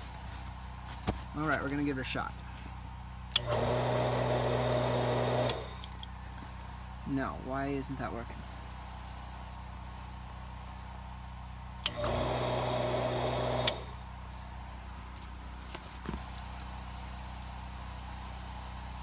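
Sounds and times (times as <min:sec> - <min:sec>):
switch clicks: 0:03.3 - 0:03.6, 0:11.8 - 0:12.2
louder noisy pump sound: 0:03.3 - 0:06.1, 0:11.8 - 0:14.0
pump motor humming: 0:03.3 - 0:06.5, 0:11.8 - 0:14.1.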